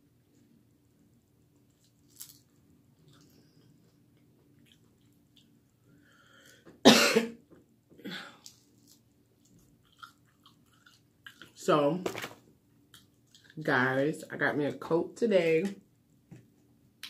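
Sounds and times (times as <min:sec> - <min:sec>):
woman coughing: 0:06.8 - 0:07.4
eating sounds: 0:08.4 - 0:11.6, 0:12.9 - 0:13.6.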